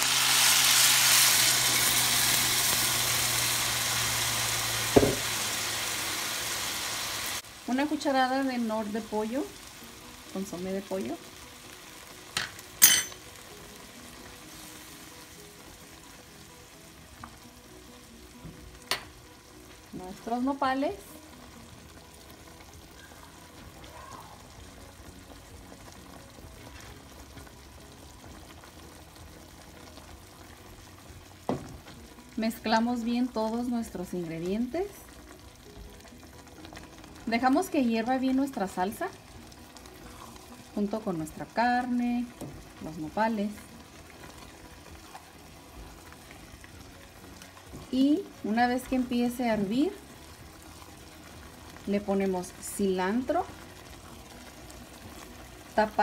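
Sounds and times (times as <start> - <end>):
sauce sizzling in hot pan: 0.0 - 56.0.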